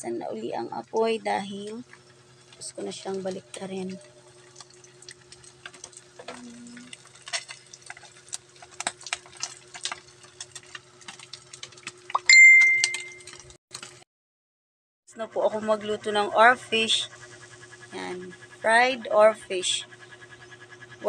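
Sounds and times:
low steady hum: 0.0s - 13.5s, 15.1s - 21.0s
fish frying in oil: 0.6s - 14.0s
high steady tone: 12.2s - 13.3s.

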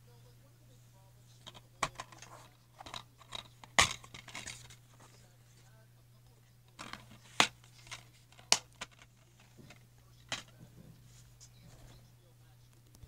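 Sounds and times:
plastic cases clicking and snapping: 1.4s - 4.8s, 6.7s - 10.5s.

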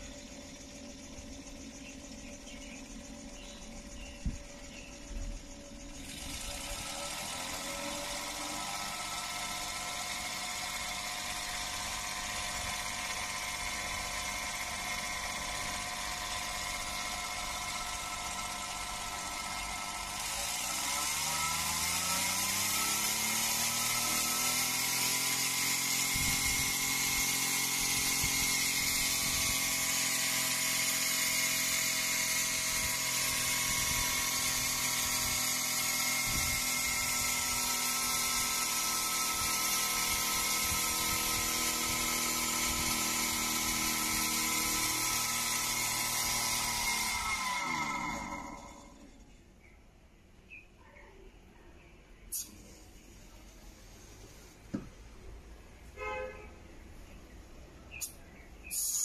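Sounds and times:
air motor whining: 0.0s - 49.4s, 57.9s - 59.0s
exhaust air hissing: 52.3s - 55.2s, 57.9s - 59.0s.

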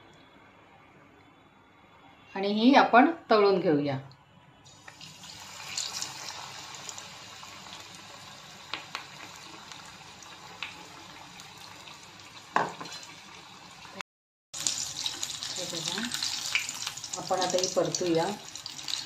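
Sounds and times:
oil sizzling with pops: 4.6s - 14.0s, 14.6s - 19.0s.

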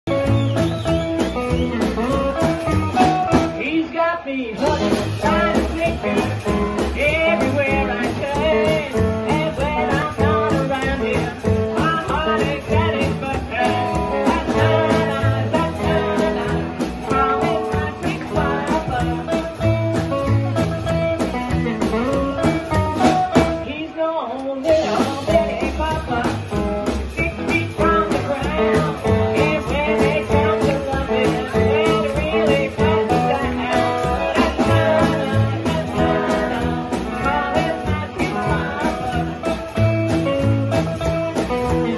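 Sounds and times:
upright double bass: 0.0s - 3.8s, 4.6s - 23.8s, 24.7s - 41.9s
drums: 0.0s - 41.9s
electric guitar: 0.0s - 41.9s
woman singing: 3.6s - 20.7s, 27.2s - 40.2s.

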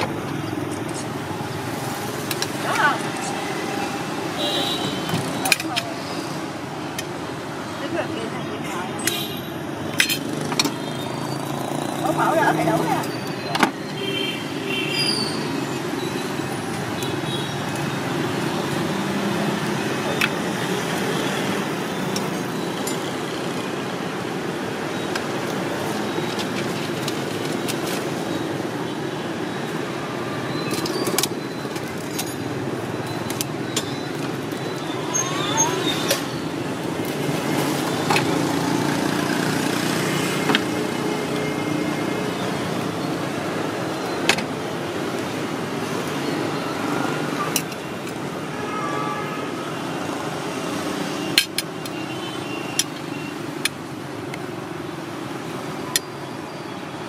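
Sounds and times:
street traffic rumble: 0.0s - 57.0s.

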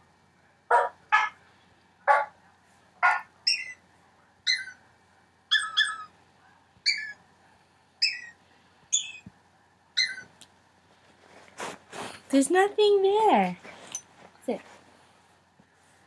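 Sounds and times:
high-pitched dog bark notes: 0.7s - 1.4s, 3.0s - 3.7s.

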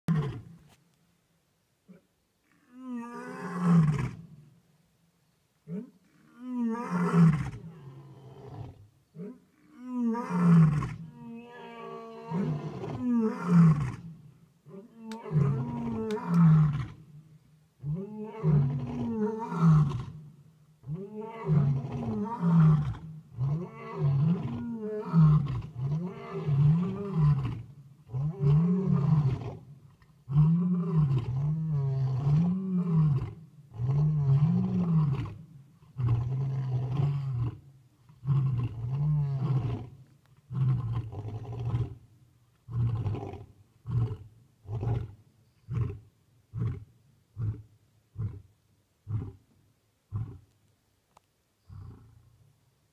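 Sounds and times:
lion roaring: 14.7s - 17.0s.

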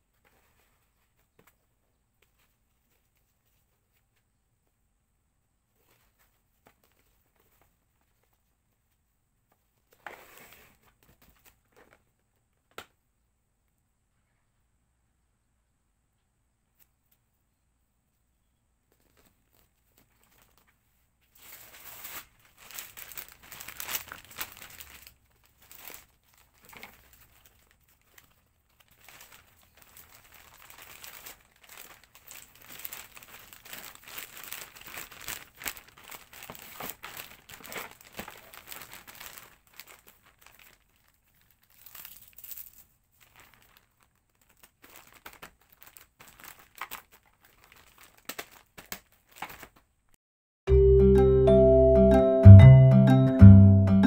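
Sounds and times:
packaging crinkling: 18.9s - 49.9s.

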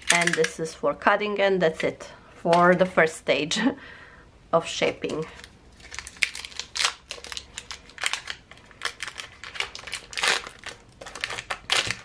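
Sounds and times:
plastic wrapper crinkling: 5.0s - 12.0s.

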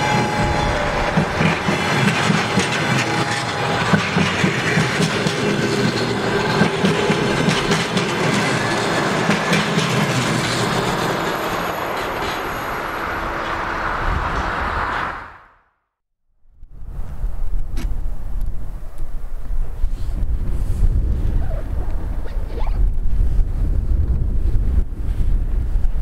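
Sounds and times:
clickety-clack of wheels on rail joints: 0.0s - 15.2s
passenger train rumbling past: 0.0s - 15.6s.

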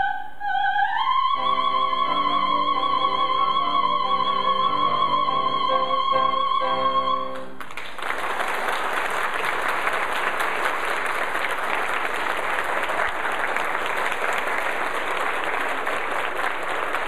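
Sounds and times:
audience applauding: 7.4s - 17.0s.

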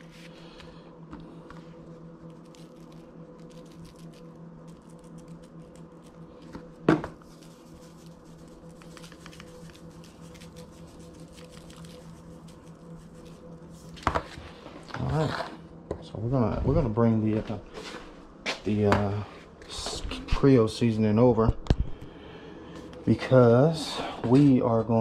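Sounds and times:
seasoning grains pattering: 2.0s - 6.6s, 7.2s - 14.4s
shaker rattle: 2.2s - 6.5s, 7.2s - 14.2s.

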